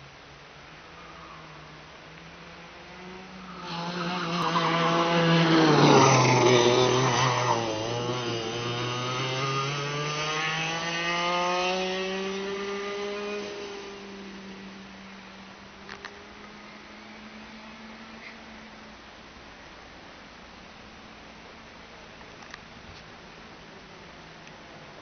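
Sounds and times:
go-kart engine passing by: 0.9s - 18.4s.

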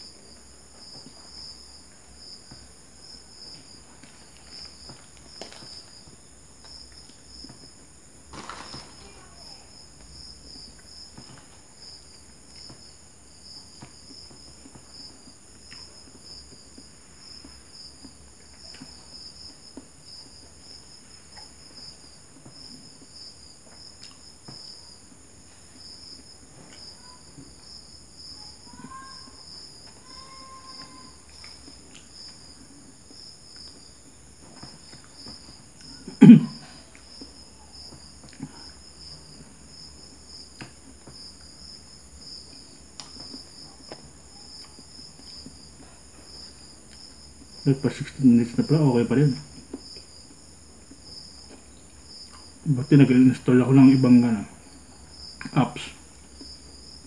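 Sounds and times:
crickets chirring: 0.0s - 57.0s
man chewing food: 0.1s - 8.0s, 9.9s - 28.2s, 31.2s - 47.6s, 49.4s - 52.6s.

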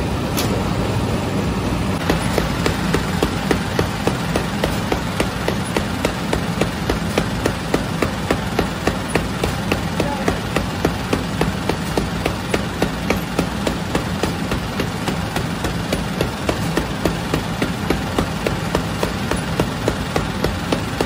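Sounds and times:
machinery humming: 0.0s - 21.0s
rapid machine clicking: 2.0s - 21.0s.

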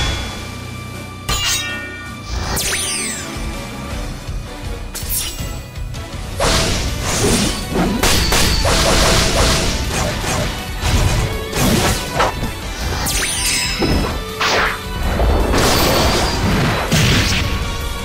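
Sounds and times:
background music: 0.0s - 18.0s
crashing impacts and whacks: 6.4s - 13.1s.

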